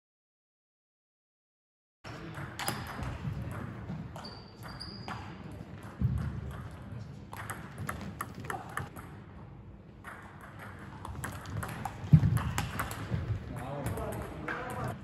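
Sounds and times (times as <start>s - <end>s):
table tennis ball clicking: 10.1s - 13.1s.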